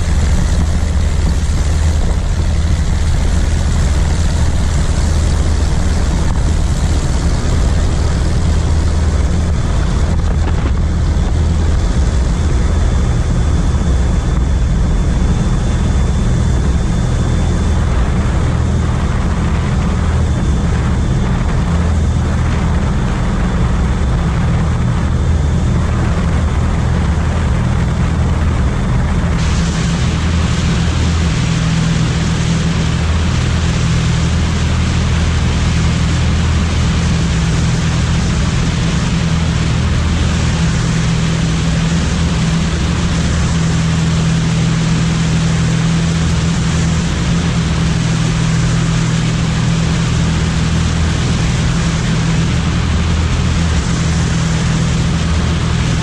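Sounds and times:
propeller engines droning: 0.0 - 56.0
thin high whine: 0.0 - 56.0
loud hiss: 29.3 - 33.7.

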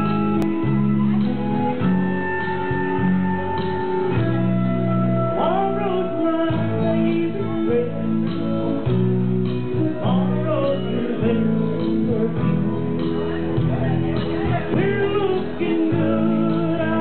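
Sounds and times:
amplified guitar music: 0.0 - 17.0
person singing into a microphone: 4.1 - 17.0.

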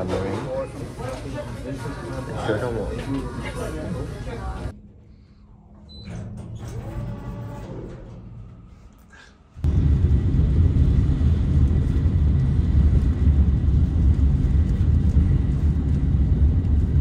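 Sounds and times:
vehicle rumble on steel bridge: 9.6 - 17.0.

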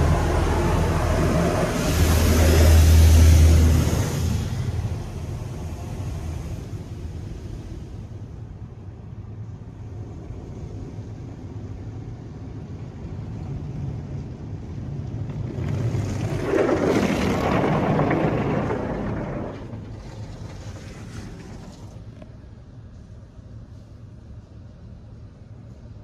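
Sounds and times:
water spray drumming on car: 0.0 - 6.7.

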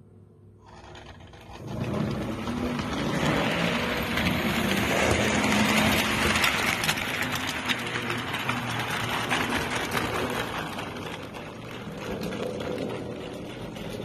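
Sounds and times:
model train whirring and clattering: 0.6 - 14.0.

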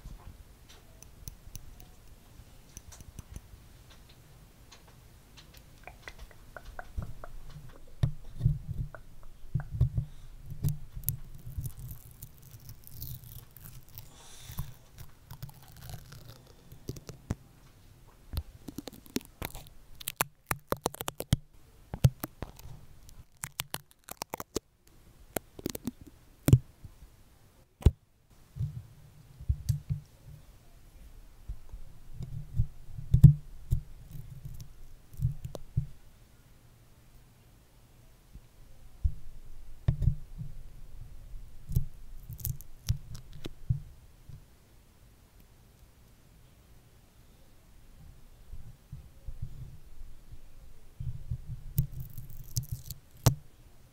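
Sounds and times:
stickers crackling on microphone: 10.6 - 17.4, 18.4 - 21.4, 22.0 - 24.6, 25.4 - 26.6.

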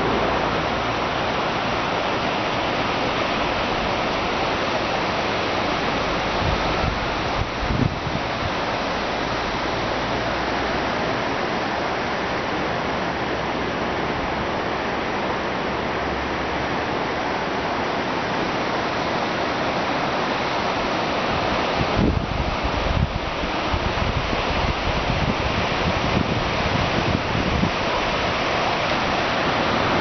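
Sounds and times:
river rushing: 0.0 - 30.0
wind buffeting microphone: 5.8 - 9.9, 21.3 - 30.0.

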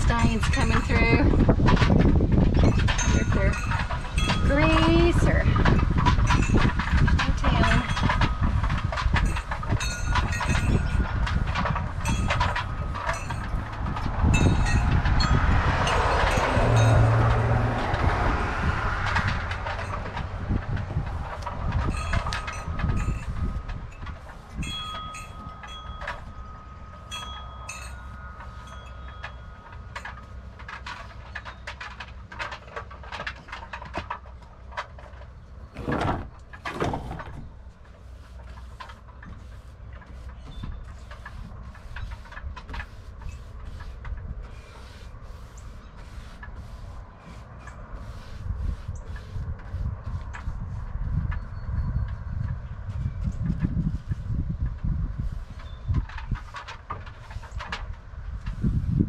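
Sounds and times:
low rumble: 0.0 - 31.2
paintbrush strokes on wood: 21.0 - 29.3, 37.6 - 51.3
loud knocks or scrapes: 29.9 - 37.6.

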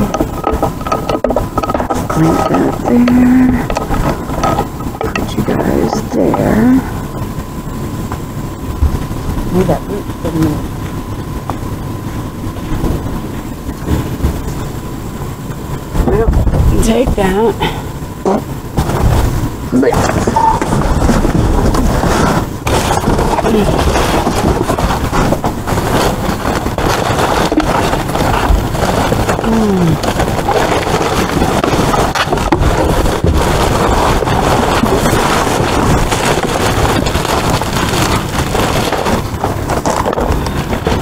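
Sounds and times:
steady rushing noise: 0.0 - 41.0
cardboard boxes scraping and rustling: 20.0 - 41.0.

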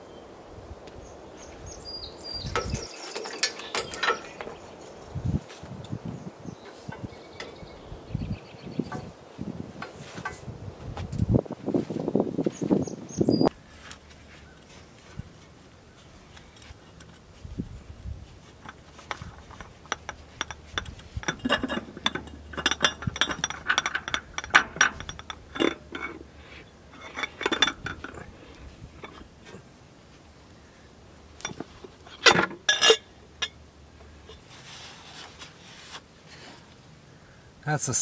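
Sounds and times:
metal parts clinking: 2.5 - 4.6, 18.6 - 26.3, 26.9 - 29.3, 31.4 - 33.6.

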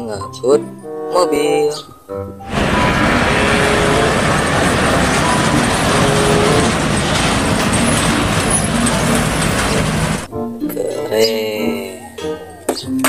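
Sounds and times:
truck driving past: 2.4 - 10.3.

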